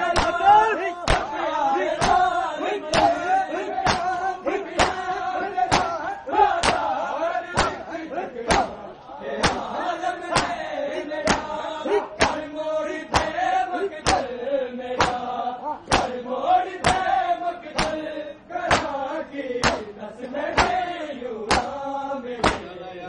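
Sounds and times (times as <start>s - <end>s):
crowd chanting: 0.0s - 23.0s
hands striking chests: 0.2s - 0.4s, 1.0s - 1.3s, 3.8s - 4.2s, 5.7s - 6.0s, 10.4s - 10.6s, 11.3s - 11.6s, 12.2s - 12.4s, 13.1s - 13.3s, 15.0s - 15.2s, 15.9s - 16.1s, 18.7s - 19.0s, 19.6s - 19.9s, 21.5s - 21.7s, 22.4s - 22.7s.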